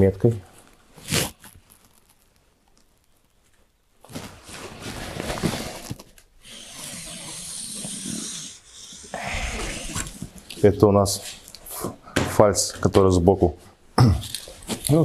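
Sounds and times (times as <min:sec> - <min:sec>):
marker pen scratching along ruler: 0:06.4 - 0:10.4.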